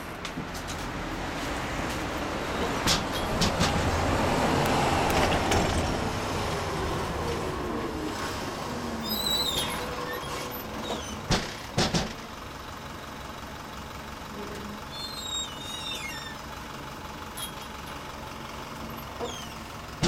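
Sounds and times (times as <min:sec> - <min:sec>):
traffic noise: 0:00.0 - 0:20.0
truck driving past: 0:00.0 - 0:20.0.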